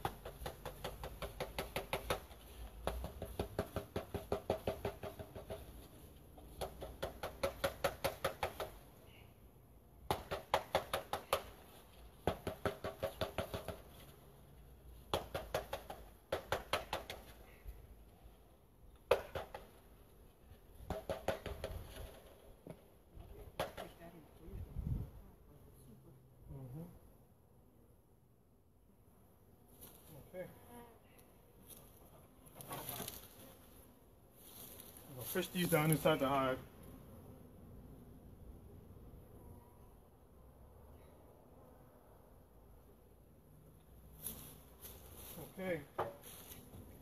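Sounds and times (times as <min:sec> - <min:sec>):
rapid knocking of bee package: 0:00.0 - 0:08.8, 0:10.1 - 0:11.6, 0:12.2 - 0:13.9, 0:15.1 - 0:17.3, 0:20.9 - 0:22.8.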